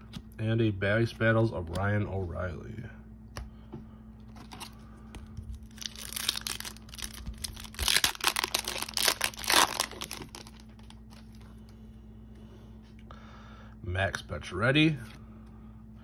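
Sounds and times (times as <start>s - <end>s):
foil wrapper tearing and crinkling: 5.5s - 11.3s.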